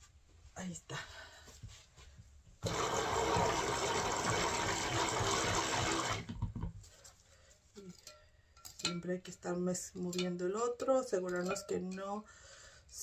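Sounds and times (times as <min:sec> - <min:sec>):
stick blender whirring: 0:02.6 - 0:06.4.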